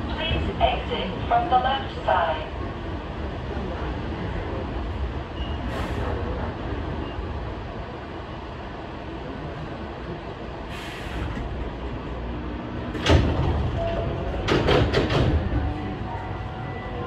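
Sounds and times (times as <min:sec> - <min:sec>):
sliding doors closing knocks: 0:13.0 - 0:13.8, 0:14.4 - 0:15.6.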